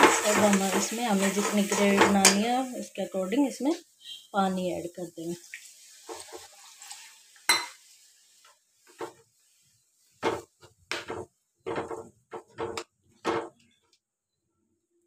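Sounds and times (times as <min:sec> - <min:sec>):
spatula scraping pan: 0:00.0 - 0:02.5, 0:06.0 - 0:07.2, 0:08.8 - 0:09.2, 0:10.2 - 0:13.6.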